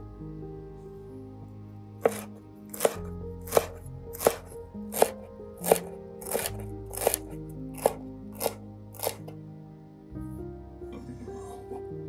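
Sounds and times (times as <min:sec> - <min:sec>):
knife chopping on wooden board: 0:02.0 - 0:07.2, 0:07.8 - 0:09.2.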